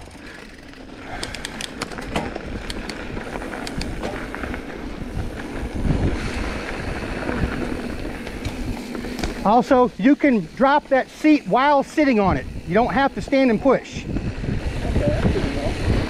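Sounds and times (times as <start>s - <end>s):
bike clicking and rattling: 0.0s - 16.0s
tyres rumbling on dirt trail: 0.0s - 16.0s
wind on microphone: 2.0s - 9.4s, 12.2s - 16.0s.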